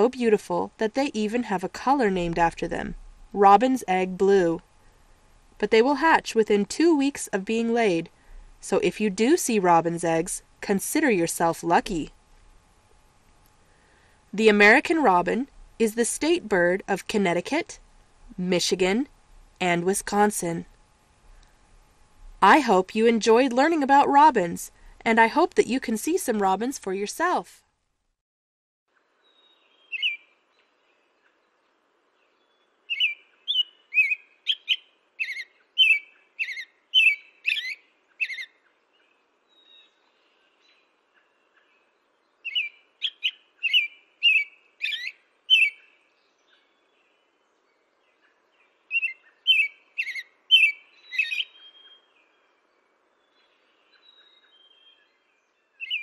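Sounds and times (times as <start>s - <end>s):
robin singing: 29.2s - 56.0s.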